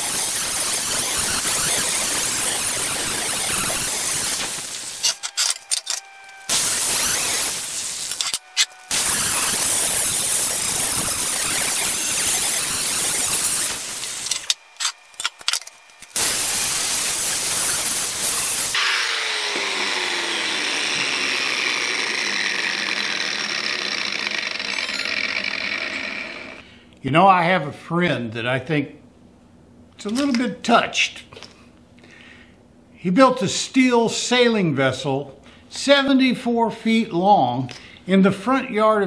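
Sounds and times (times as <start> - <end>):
angle grinder grinding steel: 0.0 - 26.6
grinder running with falling whine: 0.0 - 26.7.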